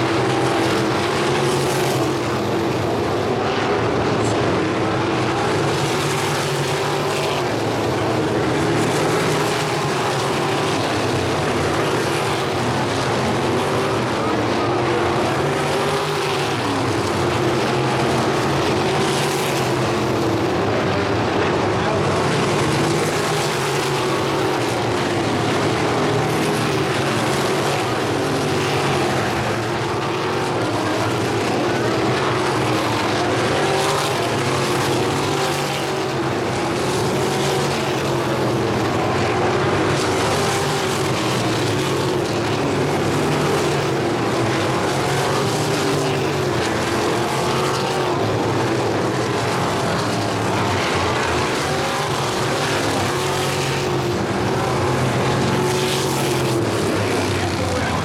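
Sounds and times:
racing car engines droning: 0.0s - 58.0s.

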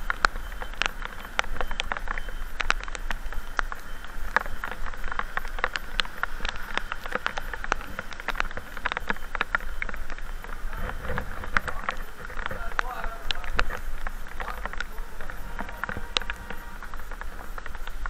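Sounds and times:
rain hissing on wet road: 0.0s - 18.0s
raindrops tapping on microphone: 0.0s - 18.0s.

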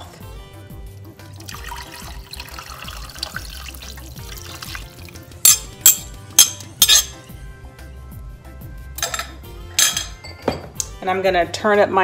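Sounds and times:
broth pouring into a pot: 1.2s - 5.3s
sharp clinks against a pot: 5.4s - 7.2s, 9.0s - 10.9s.

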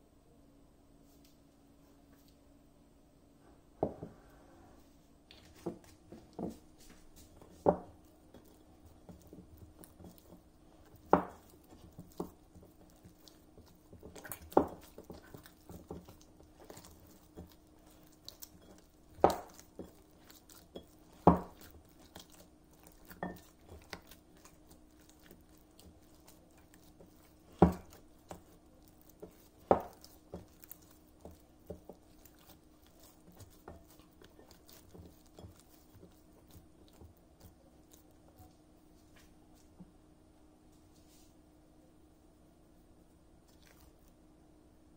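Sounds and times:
dough squishing: 5.2s - 40.0s, 43.4s - 44.3s
dough slapping: 5.6s - 38.4s.

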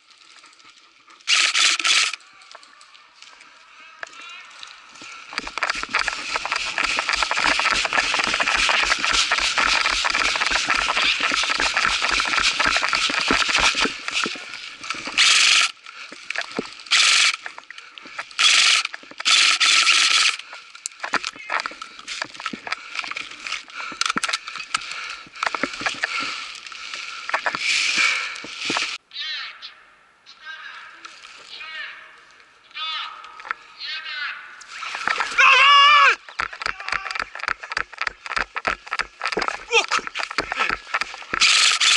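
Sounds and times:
airsoft rifle fire: 1.3s - 2.1s
running footsteps: 4.9s - 29.0s, 34.9s - 41.9s
clicks and snaps: 5.3s - 27.6s, 36.2s - 41.9s
gear rattling: 5.3s - 29.0s, 36.2s - 41.9s.

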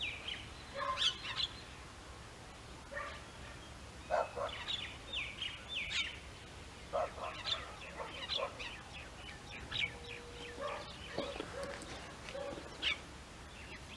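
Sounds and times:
birds chirping and squawking: 0.0s - 1.8s, 3.0s - 13.9s.

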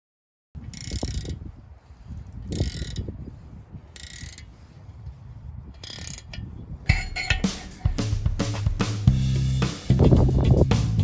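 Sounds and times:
mechanical ratcheting and rasping: 0.6s - 1.5s, 2.5s - 3.1s, 3.9s - 4.5s, 5.8s - 8.0s.

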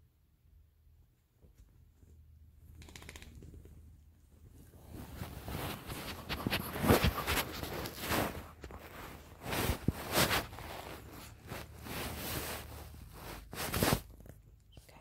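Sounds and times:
fur rustling against microphone: 3.6s - 14.4s.

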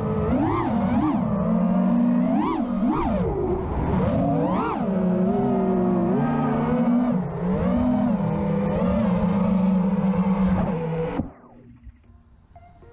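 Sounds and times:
drone motors whining: 0.0s - 12.9s.

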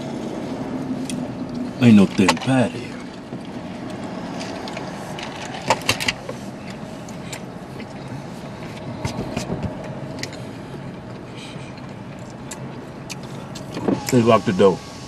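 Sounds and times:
car cabin hum: 0.0s - 14.9s
handling clicks and knocks: 8.8s - 10.4s.

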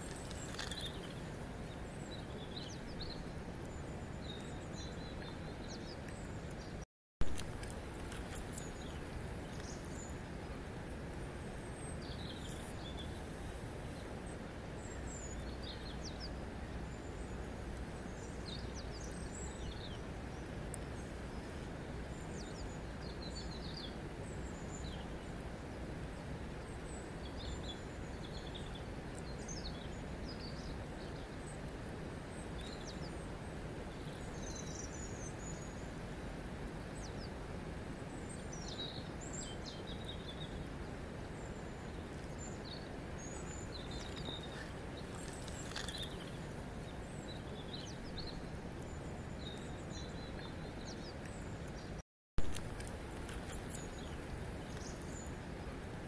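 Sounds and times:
small birds chirping: 0.0s - 6.8s, 7.6s - 10.6s, 11.5s - 13.2s, 38.1s - 52.0s, 52.8s - 55.8s
river water flowing over stones: 52.4s - 56.0s.

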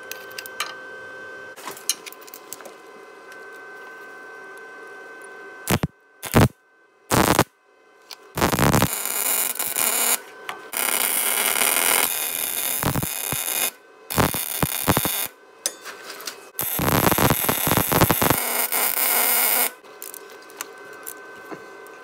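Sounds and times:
welder arc crackling: 5.7s - 6.5s, 7.1s - 7.5s, 8.4s - 15.3s, 16.6s - 20.2s.

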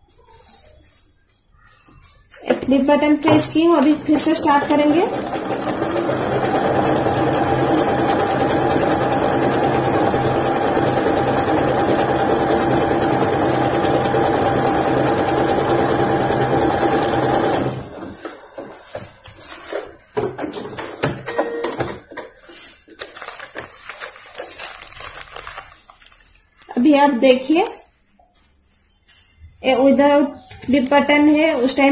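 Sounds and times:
sewing machine stitching: 3.4s - 18.2s
fabric rustling: 22.3s - 26.8s.

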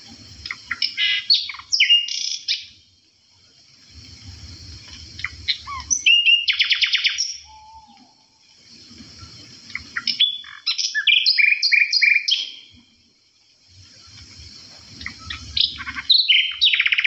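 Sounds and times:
songbird chirping and whistling: 0.4s - 2.8s, 5.2s - 8.4s, 9.2s - 12.8s, 14.9s - 17.0s.

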